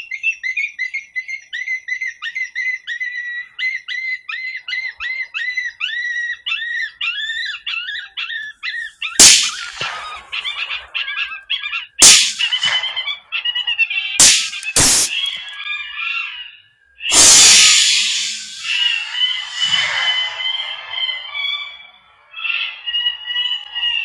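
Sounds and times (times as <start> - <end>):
high squealing calls: 4.7 - 24.0
rifle shot: 9.2 - 10.3, 12.0 - 13.0, 14.2 - 15.3.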